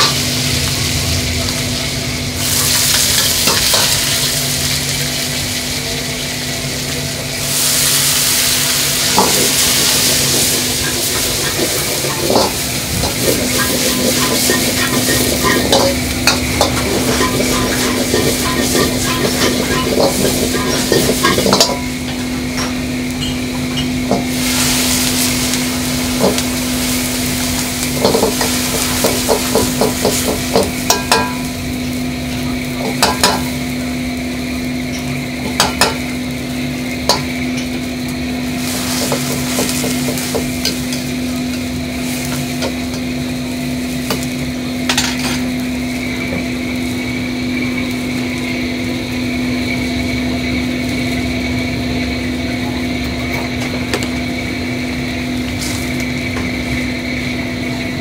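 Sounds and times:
ladle clanking and scraping wok: 0.0 - 34.1, 34.7 - 47.0
frying sizzle: 0.0 - 58.0
steady hum: 0.0 - 58.0.

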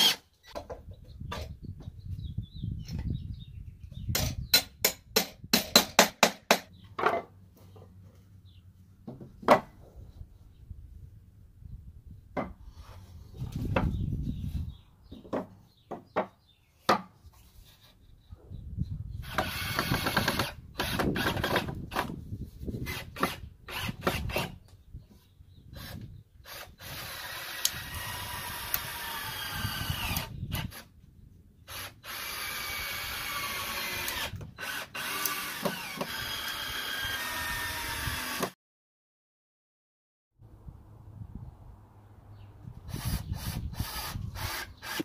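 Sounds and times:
cordless drill driving screws: 0.0 - 0.2, 19.2 - 22.0, 25.8 - 30.9, 31.7 - 38.6, 42.9 - 45.0.

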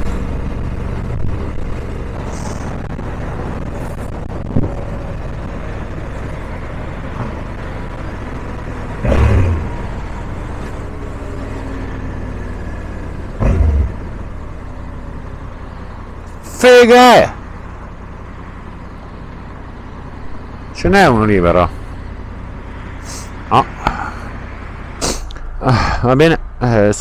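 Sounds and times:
motorcycle engine: 0.0 - 16.7
road and wind rumble: 0.0 - 27.0.

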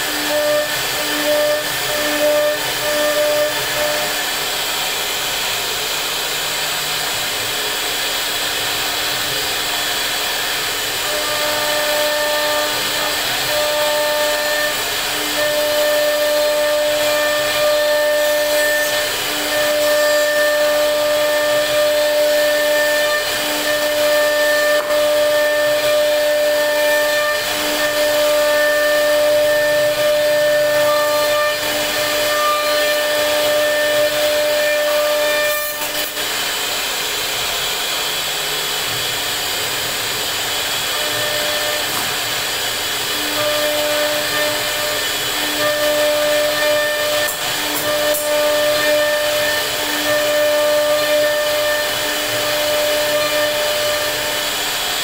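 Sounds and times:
router spindle whine: 0.0 - 55.0
wood cutting hiss: 0.0 - 55.0.

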